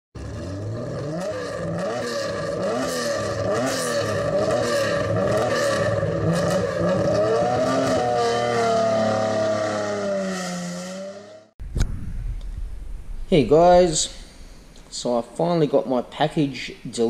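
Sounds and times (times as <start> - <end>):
car engine revving: 0.2 - 11.6.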